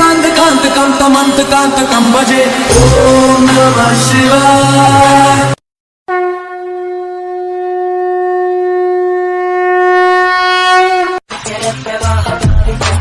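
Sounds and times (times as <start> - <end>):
conch shell blown: 6.1 - 11.2.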